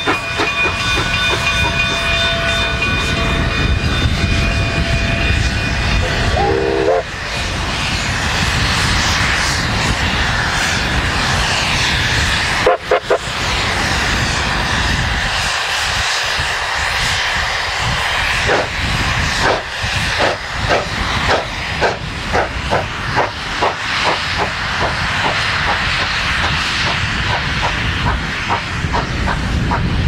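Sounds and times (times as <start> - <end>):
steam locomotive exhaust chuffs: 0.0 - 30.0
steam hiss: 5.4 - 30.0.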